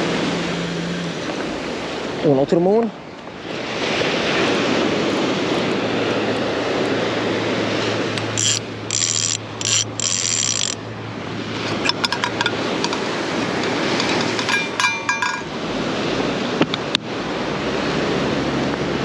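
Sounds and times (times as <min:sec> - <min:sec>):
fishing reel clicker ratcheting: 0:08.2 - 0:10.8, 0:11.6 - 0:15.5.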